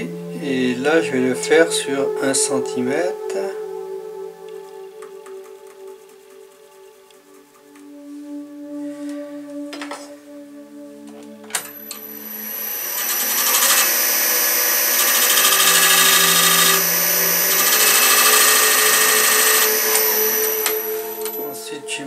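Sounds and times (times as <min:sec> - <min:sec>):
wood lathe whining: 0:11.6 - 0:21.5.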